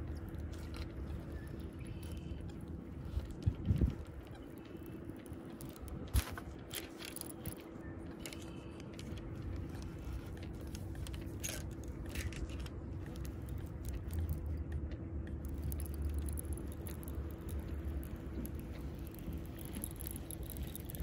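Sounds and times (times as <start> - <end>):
wind rumbling on microphone: 0.0 - 21.0
fishing reel clicking: 15.4 - 21.0.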